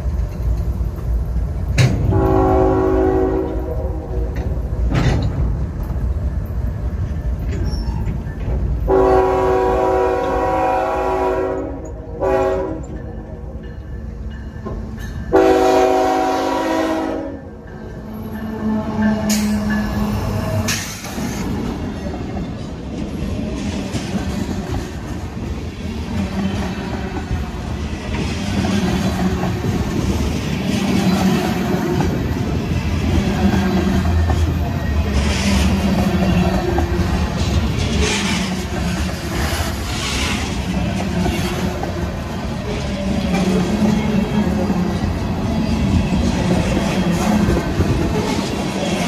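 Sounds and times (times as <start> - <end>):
passing train rumble: 0.0 - 49.0
locomotive air horn: 2.0 - 4.5, 8.9 - 12.9, 15.3 - 17.5.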